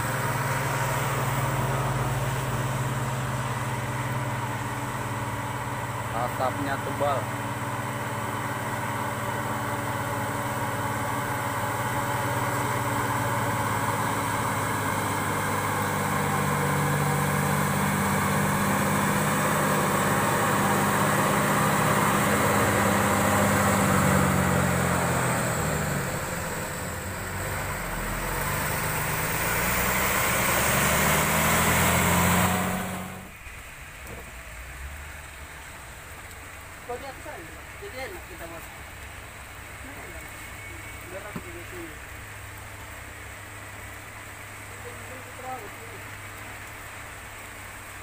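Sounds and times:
diesel truck labouring uphill: 0:00.0 - 0:48.0
rain hissing on wet road: 0:00.0 - 0:48.0.

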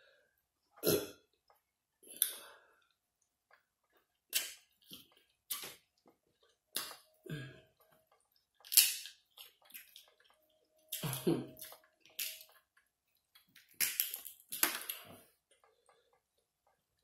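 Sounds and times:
wet eating smacks and sucks: 0:03.5 - 0:07.1.

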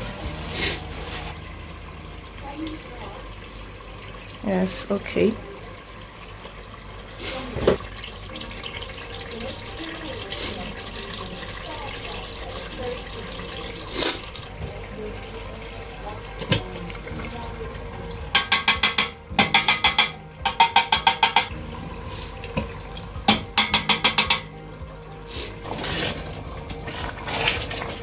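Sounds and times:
sauce simmering hiss: 0:02.4 - 0:14.6.

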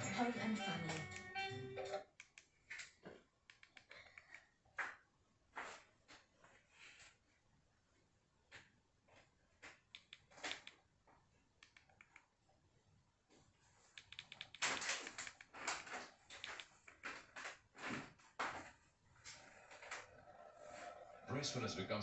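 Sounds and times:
remote control buttons clicking: 0:03.5 - 0:04.4, 0:09.9 - 0:10.8, 0:11.6 - 0:12.3, 0:14.0 - 0:17.1.

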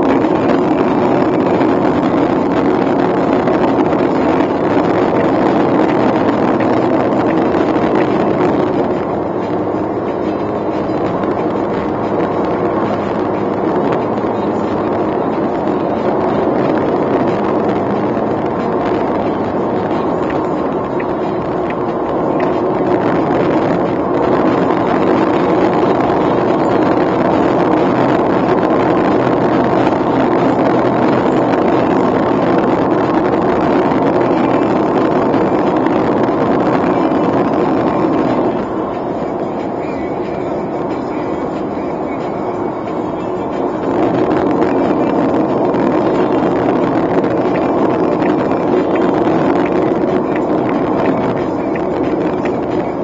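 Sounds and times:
car engine hum: 0:00.0 - 0:53.0
tyre and road roar: 0:00.0 - 0:53.0.

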